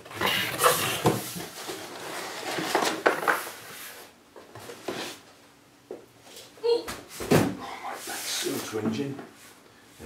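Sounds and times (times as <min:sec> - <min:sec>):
cardboard flaps scraping: 0:00.1 - 0:04.0.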